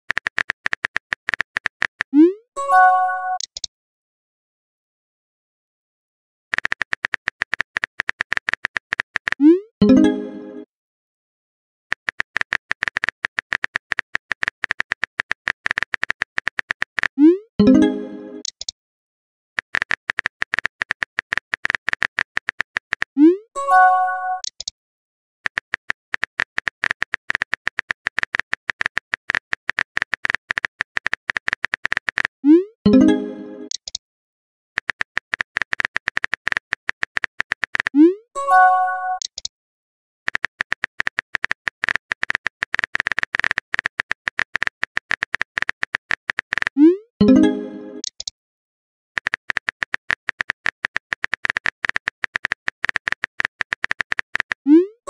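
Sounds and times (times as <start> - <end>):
virtual keyboard typing clicks: 0.1 - 3.7, 6.5 - 10.2, 11.9 - 18.7, 19.6 - 24.7, 25.5 - 32.3, 32.9 - 34.0, 34.8 - 39.5, 40.3 - 48.3, 49.2 - 54.9
message arrival sound: 2.2 - 3.4, 17.2 - 18.5, 23.2 - 24.4, 32.5 - 33.7, 38.0 - 39.2, 46.8 - 48.1.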